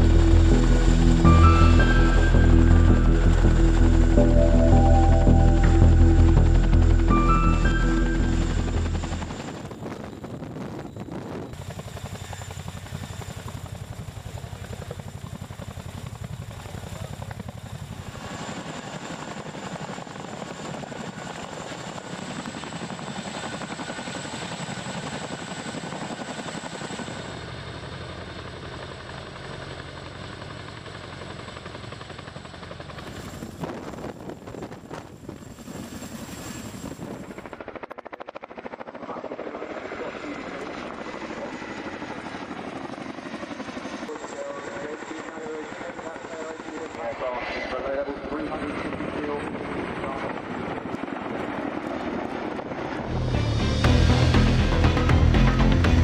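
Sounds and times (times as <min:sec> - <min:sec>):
music: 0:00.0 - 0:09.4, 0:53.0 - 0:56.0
helicopter rotors and turbines: 0:00.0 - 0:56.0.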